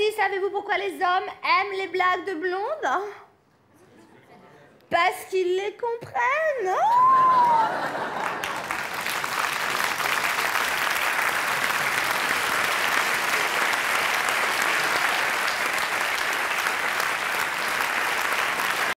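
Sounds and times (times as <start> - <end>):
audience applauding: 7.0 - 19.0.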